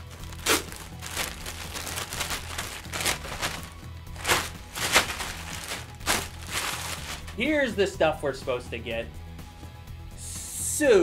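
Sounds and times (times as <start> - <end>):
plastic bag crinkling: 0.0 - 7.4
quiet background music: 0.0 - 11.0.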